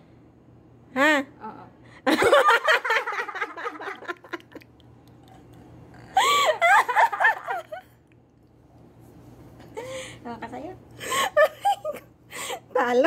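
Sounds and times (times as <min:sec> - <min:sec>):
woman laughing and giggling: 0:06.2 - 0:07.8, 0:11.0 - 0:12.7.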